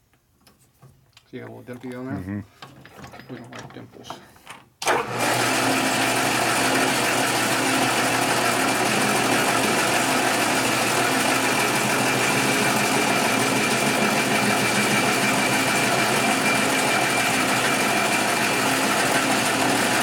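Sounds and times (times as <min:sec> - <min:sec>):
metal lathe whirring: 0:04.8 - 0:20.0.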